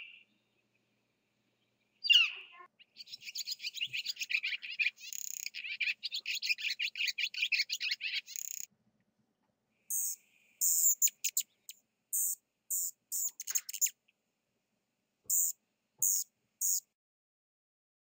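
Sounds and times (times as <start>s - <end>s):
swallow twittering: 2.0s - 8.7s, 9.9s - 14.0s, 15.3s - 16.8s
high bird chips: 2.1s - 8.7s, 9.9s - 14.0s, 15.3s - 16.8s.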